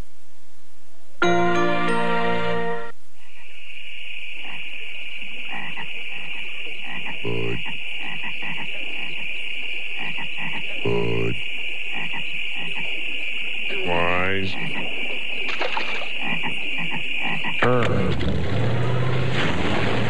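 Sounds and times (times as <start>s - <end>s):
frogs croaking: 3.0s - 20.0s
high-pitched hiss: 8.7s - 16.1s.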